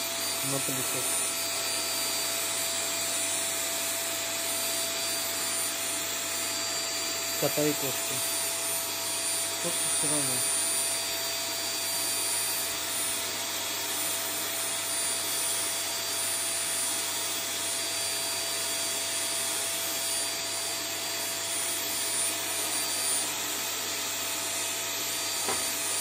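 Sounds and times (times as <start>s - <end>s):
vacuum cleaner running: 0.0s - 26.0s.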